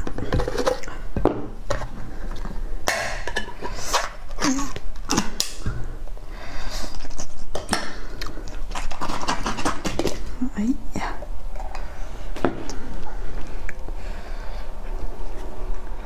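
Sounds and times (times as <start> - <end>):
scraping and tearing: 8.5 - 10.2.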